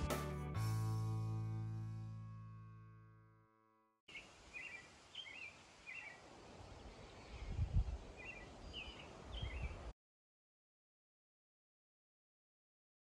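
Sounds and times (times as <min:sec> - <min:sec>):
outdoor hiss: 0:04.1 - 0:09.9
songbird chirping: 0:04.1 - 0:09.9
wind gusting on microphone: 0:06.8 - 0:09.9.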